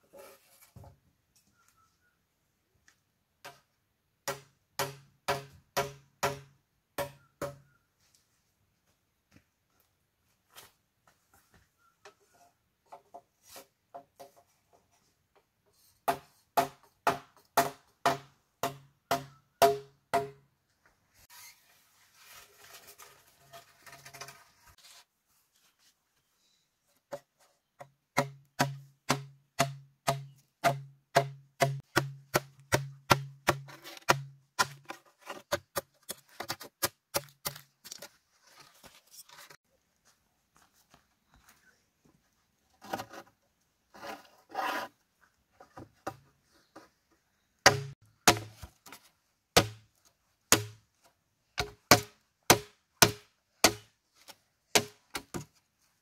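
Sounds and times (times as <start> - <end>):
bamboo being struck: 4.2 - 7.7, 16.1 - 20.4, 28.2 - 35.8, 47.6 - 49.0, 49.6 - 49.9, 50.5 - 50.8, 51.6 - 53.9, 54.7 - 55.5.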